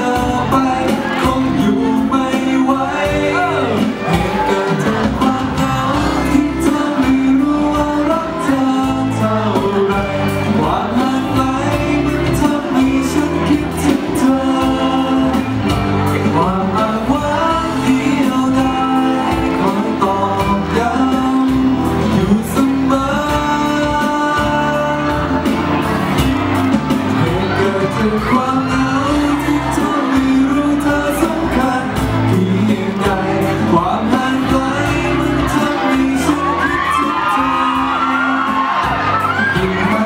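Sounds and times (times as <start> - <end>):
man singing into a microphone: 0.0 - 40.0
pop ballad backing track: 0.0 - 40.0
audience shouts and whoops: 3.0 - 7.0, 34.7 - 40.0.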